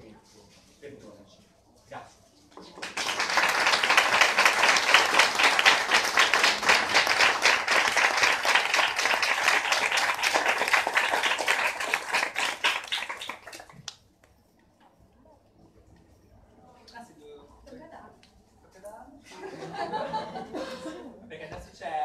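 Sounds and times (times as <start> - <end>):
audience applauding: 2.7 - 13.9.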